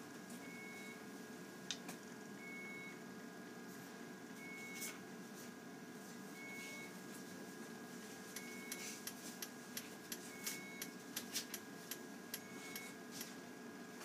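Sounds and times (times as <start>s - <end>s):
faint steady hum: 0.0s - 14.0s
electronic monitor beep: 0.4s - 1.0s, 2.4s - 3.0s, 4.4s - 4.9s, 6.4s - 7.0s, 8.4s - 9.1s, 10.2s - 11.0s, 12.3s - 13.0s.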